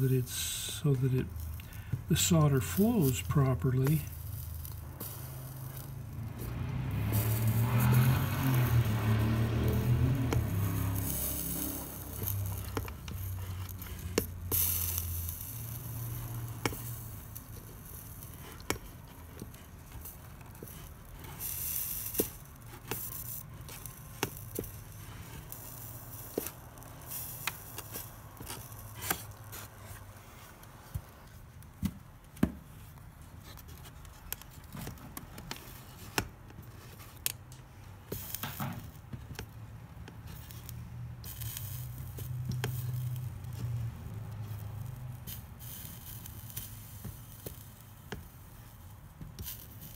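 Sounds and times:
flux sizzling: 0.0 - 29.8.

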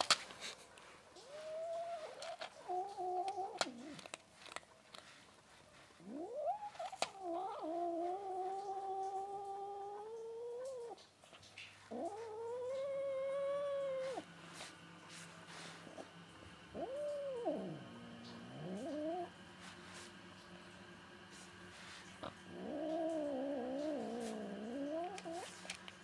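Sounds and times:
cat yowling: 1.2 - 4.0, 6.0 - 11.0, 11.9 - 14.3, 16.7 - 19.4, 22.5 - 25.5.

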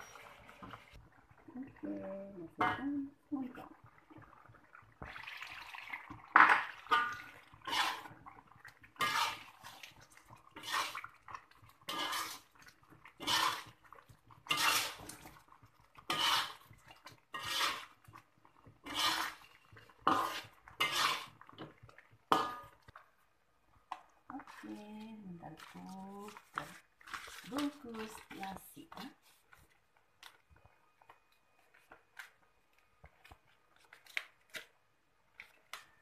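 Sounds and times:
metal spatula scraping a wok: 6.8 - 8.2, 9.0 - 9.8, 10.5 - 11.1, 11.8 - 12.5, 13.2 - 13.8, 14.4 - 15.2, 16.0 - 18.1, 18.8 - 21.4.

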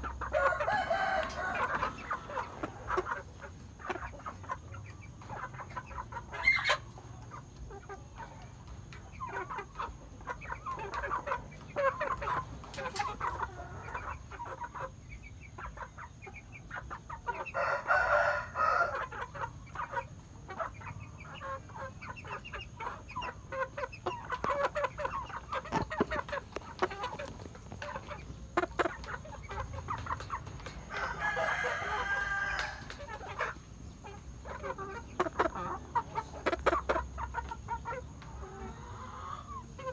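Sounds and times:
chickens clucking: 0.0 - 39.9
rooster crowing: 0.3 - 2.5, 17.4 - 19.1, 30.9 - 32.9.

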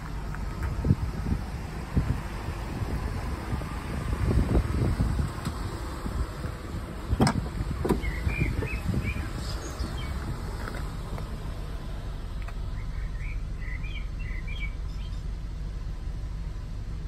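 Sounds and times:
wind buffeting microphone: 0.0 - 11.1
bird chirps: 8.0 - 10.2, 12.7 - 15.3.

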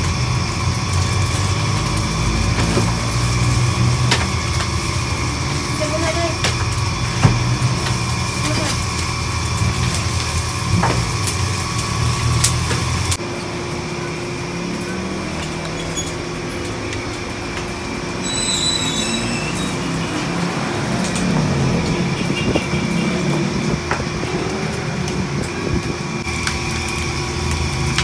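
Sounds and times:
street traffic passing: 0.0 - 28.0
high squeal: 15.6 - 16.4, 18.2 - 20.3.

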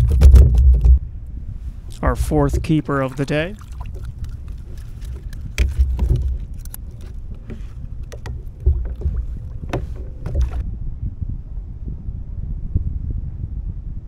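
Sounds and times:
wind gusting on microphone: 0.0 - 14.0
clicks of fishing tackle: 3.9 - 10.6.

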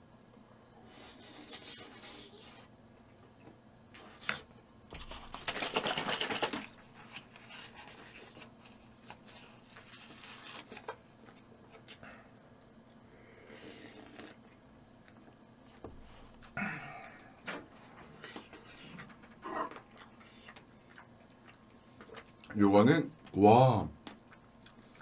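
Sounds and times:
chewing: 18.2 - 23.4, 24.0 - 25.0.

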